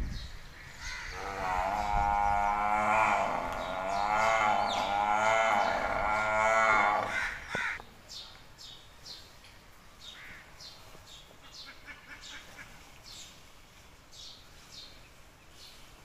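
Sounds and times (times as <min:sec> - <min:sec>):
birds calling faintly: 0:00.0 - 0:16.0
water buffalo lowing: 0:01.1 - 0:07.3.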